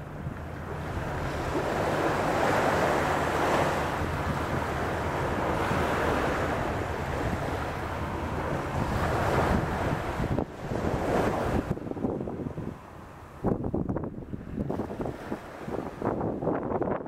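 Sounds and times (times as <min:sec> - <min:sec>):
wind rumbling on microphone: 0:00.0 - 0:17.0
small waves breaking on sand: 0:00.6 - 0:13.5, 0:14.3 - 0:16.6.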